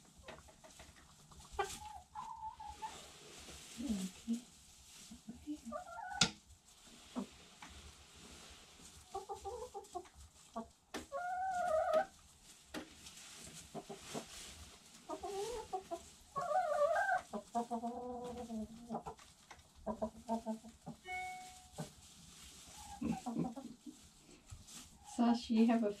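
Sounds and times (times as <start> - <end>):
hens clucking: 0.2 - 3.0, 5.2 - 6.3, 9.0 - 12.1, 13.7 - 14.4, 15.0 - 21.0, 22.6 - 24.2.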